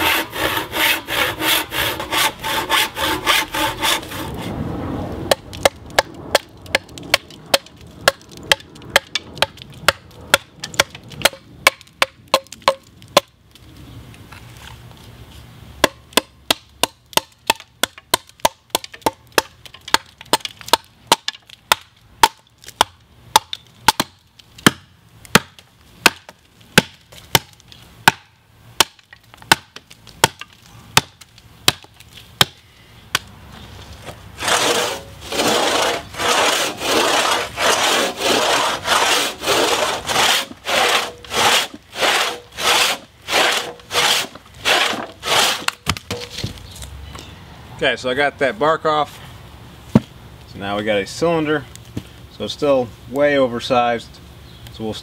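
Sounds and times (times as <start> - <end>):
crosscut saw rasping through log: 0.0 - 4.5, 34.4 - 45.8
hatchet chopping log: 5.3 - 13.4, 15.8 - 33.3, 34.5 - 46.5.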